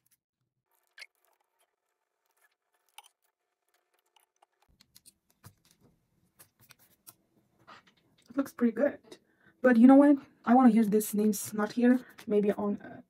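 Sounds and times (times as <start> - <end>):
sticker sheet rustling: 0.8 - 7.9.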